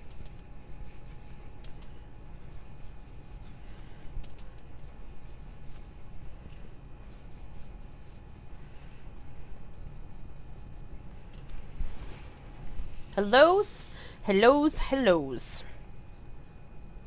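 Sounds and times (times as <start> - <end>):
paintbrush rubbing on wood: 0.0 - 13.4
low steady hum: 0.0 - 17.0.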